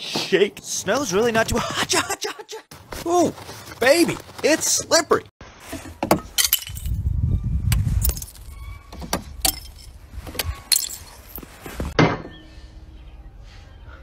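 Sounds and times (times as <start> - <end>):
clinking ice: 10.7 - 11.3.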